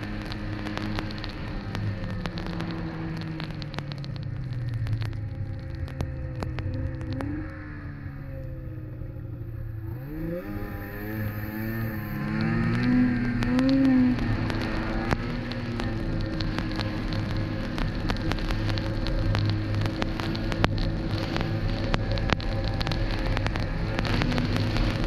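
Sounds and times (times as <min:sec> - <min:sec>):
snowmobile engine running: 0:00.0 - 0:25.0
sharp ticks: 0:09.9 - 0:25.0.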